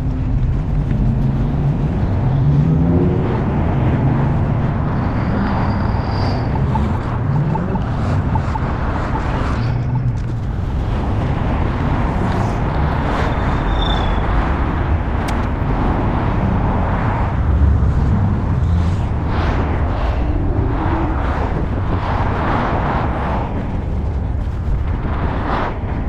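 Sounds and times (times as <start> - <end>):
skate wheels rolling on pavement: 0.0 - 7.2.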